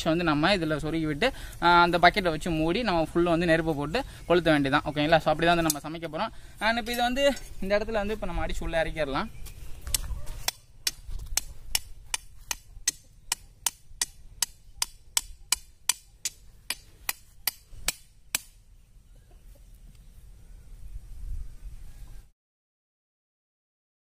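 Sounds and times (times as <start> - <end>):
hammer striking iron rod: 10.5 - 18.6.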